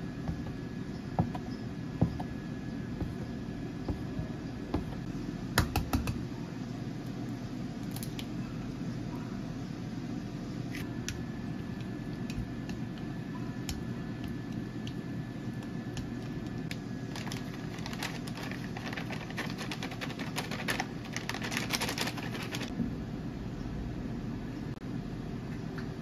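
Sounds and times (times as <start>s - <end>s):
low background hum: 0.0s - 26.0s
plastic bag crackling: 16.2s - 22.7s.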